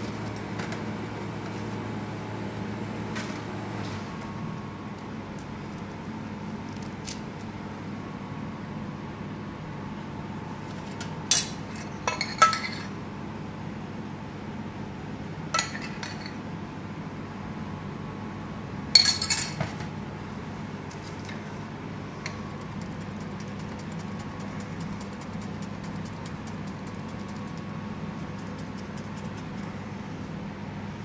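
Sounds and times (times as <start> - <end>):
steady kitchen hum: 0.0 - 31.0
metal spoon clinking on plate: 15.6 - 16.4.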